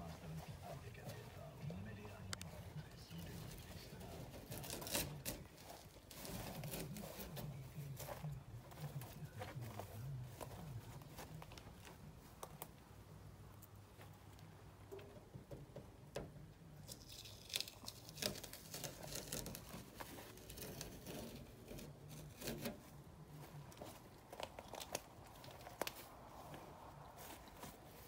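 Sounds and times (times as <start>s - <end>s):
tape being peeled and torn: 3.2s - 12.8s, 16.8s - 28.0s
light clicks and knocks: 14.0s - 16.6s.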